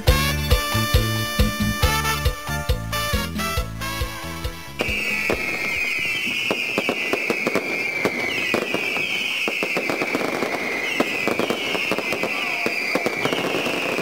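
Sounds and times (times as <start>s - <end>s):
dance music: 0.0s - 6.0s
fireworks bangs and crackles: 0.0s - 14.0s
fireworks high whistling: 0.0s - 14.0s.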